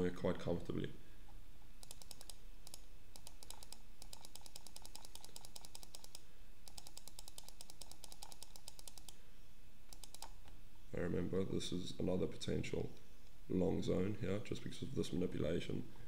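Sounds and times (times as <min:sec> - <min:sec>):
mouse button clicking rapidly: 0:01.8 - 0:09.2, 0:09.9 - 0:10.5.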